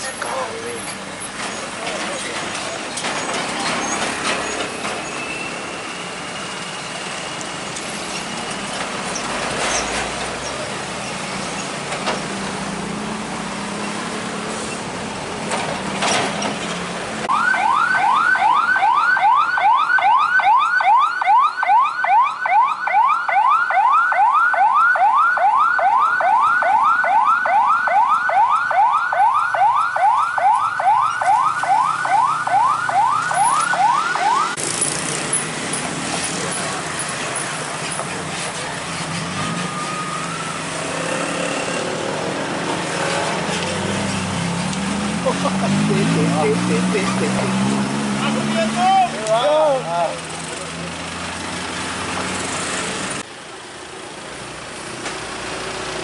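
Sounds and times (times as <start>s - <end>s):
motorbikes driving: 0.0s - 17.5s, 30.2s - 56.0s
heavy trucks driving: 0.0s - 19.8s, 26.0s - 56.0s
crossing warning alarm whoops: 17.3s - 34.6s.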